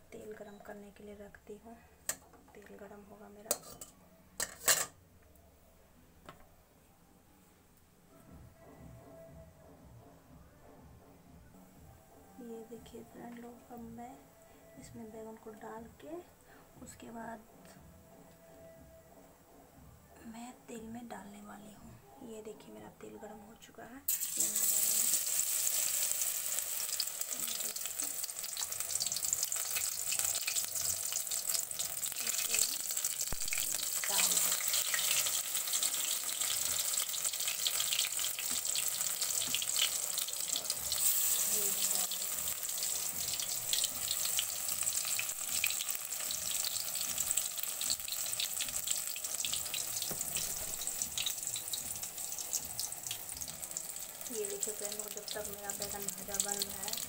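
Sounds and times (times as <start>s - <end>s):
crackles and pops of frying: 24.1s - 57.0s
eggplant frying in hot oil: 24.1s - 57.0s.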